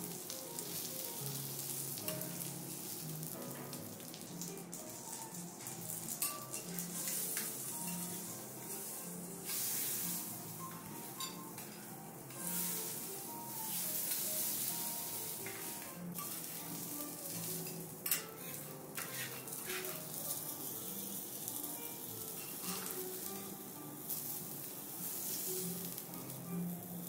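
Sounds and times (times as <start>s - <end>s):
food sizzling on a griddle: 0.0s - 27.0s
metal utensils clicking on plate: 6.2s - 8.1s, 17.6s - 20.0s.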